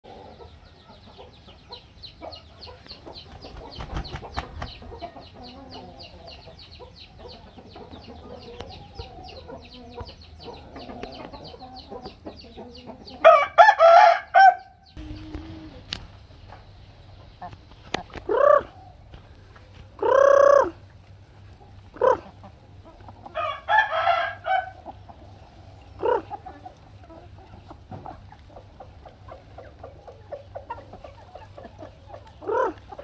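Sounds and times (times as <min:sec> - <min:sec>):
rooster crowing: 0:13.2 - 0:15.3, 0:23.4 - 0:24.7.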